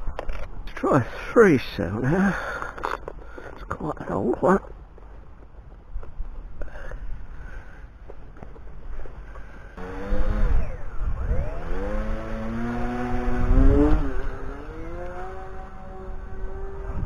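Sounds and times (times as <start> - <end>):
wind rumbling on microphone: 2.8 - 17.0
electric motors and propellers whining: 9.8 - 17.0.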